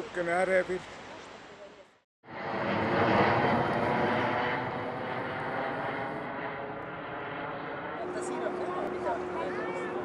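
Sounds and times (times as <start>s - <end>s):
engine drone: 2.2s - 10.0s.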